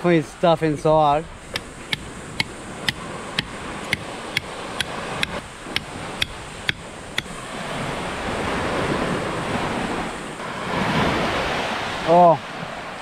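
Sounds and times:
surf: 0.0s - 13.0s
wind: 0.0s - 13.0s
knife chopping coconut: 1.6s - 7.3s.

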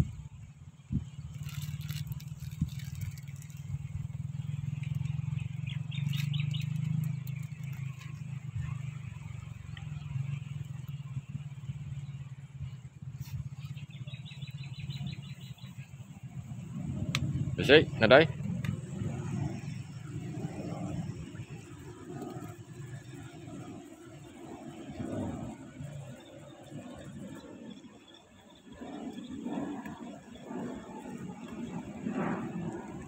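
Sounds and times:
low outdoor rumble: 0.0s - 33.0s
rapid high bird chirps: 4.9s - 8.3s, 13.4s - 16.2s.

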